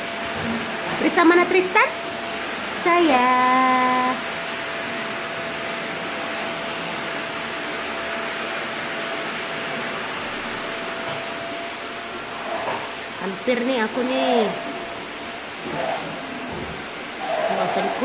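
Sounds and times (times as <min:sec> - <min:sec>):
motor-driven appliance running: 0:12.4 - 0:18.0.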